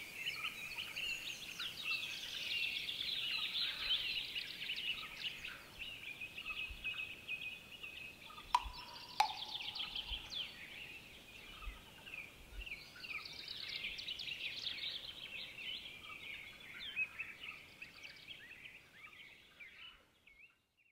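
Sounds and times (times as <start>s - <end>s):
songbirds chirping: 0.0s - 20.9s
sharp clicks: 8.6s - 10.3s.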